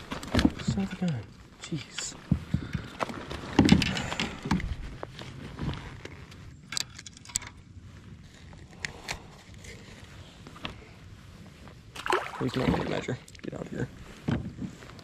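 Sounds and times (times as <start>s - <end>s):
fishing gear knocking and clicking: 2.0s - 4.7s.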